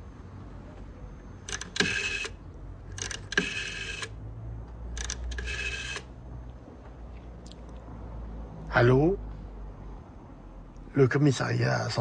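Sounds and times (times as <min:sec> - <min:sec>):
rotary phone dial clicking and whirring: 0:01.4 - 0:06.2.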